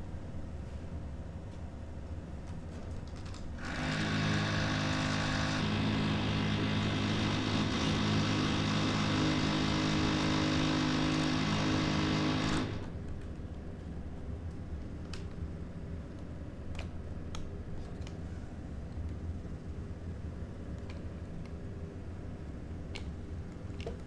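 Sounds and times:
electric motor and drivetrain whining: 3.6s - 12.9s.

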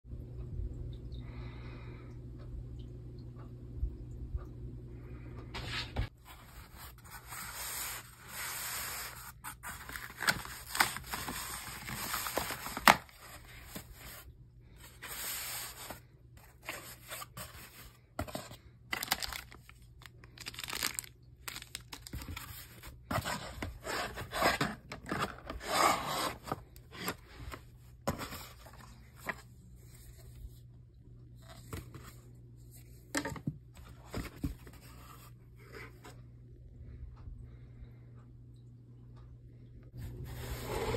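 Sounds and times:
cardboard and plastic tearing: 7.0s - 14.2s, 15.0s - 27.2s.

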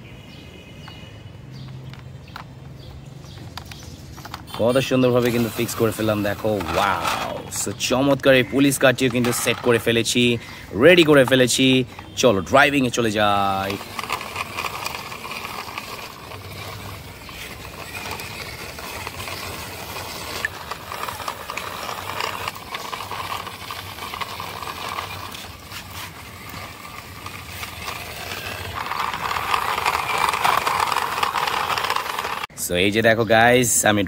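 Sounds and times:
toy car wheels rolling on concrete: 0.8s - 32.5s
small plastic clicks: 1.6s - 6.8s, 13.4s - 32.5s.

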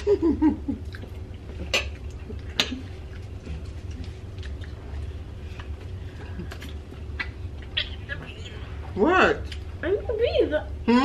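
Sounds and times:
low steady hum: 0.0s - 11.0s
chewing: 0.8s - 8.3s.

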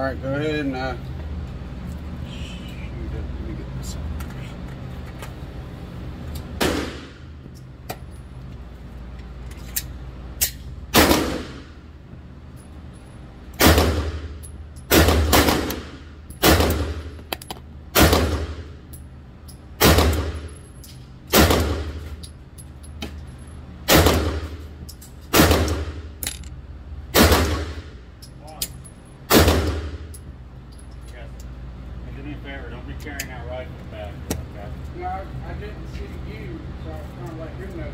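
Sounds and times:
pistol shots echoing indoors: 10.4s - 11.8s, 13.6s - 17.2s, 17.9s - 18.7s, 19.8s - 20.5s, 21.3s - 22.0s, 23.9s - 24.6s, 27.1s - 28.0s, 29.3s - 30.2s.

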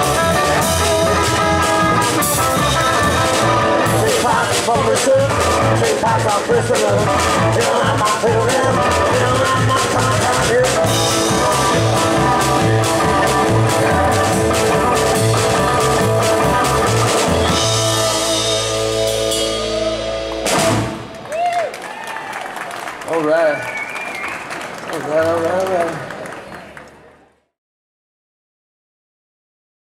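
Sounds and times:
upright bass: 0.0s - 21.1s
drum kit beat: 0.0s - 21.2s
electric guitar: 0.0s - 21.5s.

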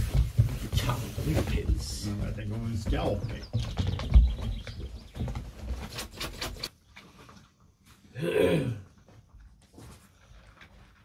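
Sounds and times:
rustling and clicking handling noise: 0.0s - 7.6s.

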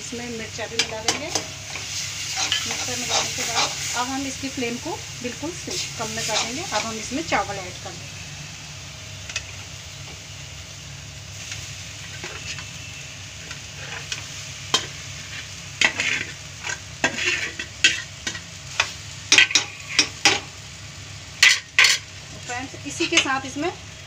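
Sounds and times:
metal spoon scraping a pan: 0.7s - 3.9s, 5.7s - 6.9s, 13.4s - 20.4s, 21.4s - 22.1s.

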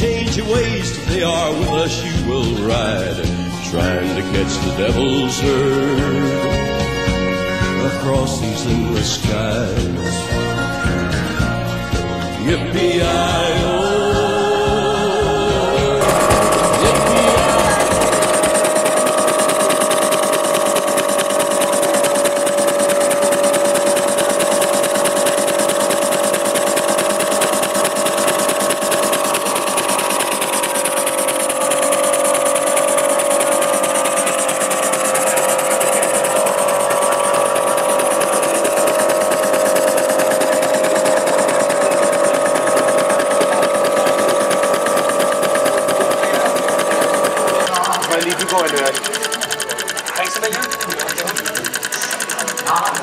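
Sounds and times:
model engines clattering: 0.0s - 53.0s
steady hum: 15.9s - 48.0s.

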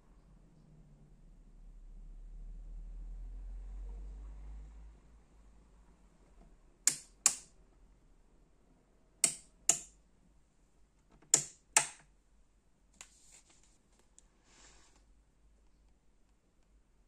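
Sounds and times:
rotary switch clicks: 6.9s - 7.5s, 9.2s - 9.9s, 11.2s - 12.1s
paper rustle: 13.0s - 14.1s.

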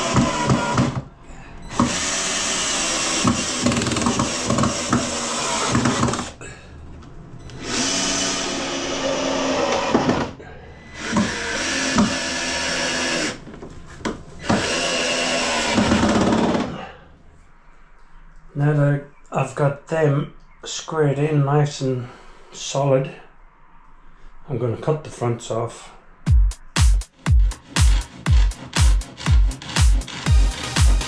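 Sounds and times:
cordless drill into timber: 0.0s - 1.1s, 1.7s - 6.4s, 7.6s - 13.4s, 14.4s - 16.8s.

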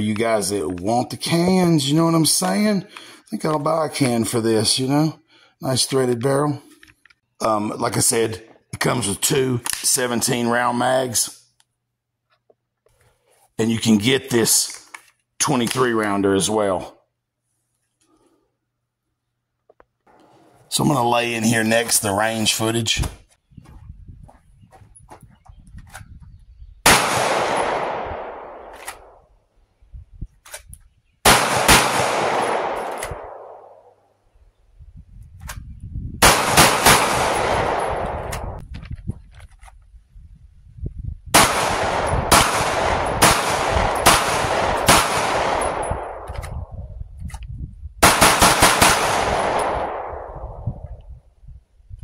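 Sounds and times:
pistol shots with echo: 26.8s - 29.2s, 31.2s - 33.9s, 36.2s - 38.6s, 41.4s - 46.7s, 48.0s - 50.8s.

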